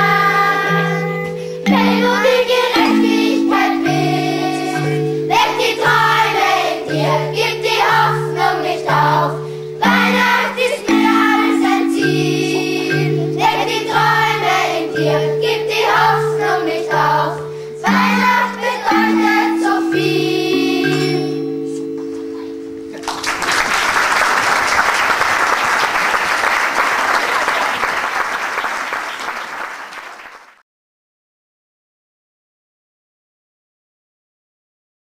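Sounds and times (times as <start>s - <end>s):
instrumental chords: 0.0s - 24.0s
children's choir singing: 0.0s - 29.9s
applause: 23.0s - 30.6s.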